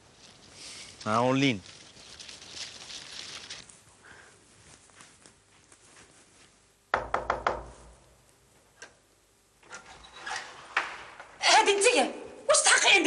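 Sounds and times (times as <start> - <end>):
knuckles knocking on door: 6.9 - 7.8.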